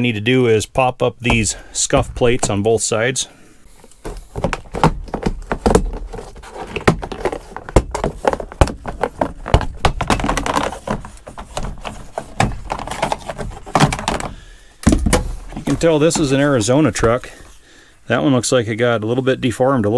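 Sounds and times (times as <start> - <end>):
plastic rattling: 3.9 - 17.2.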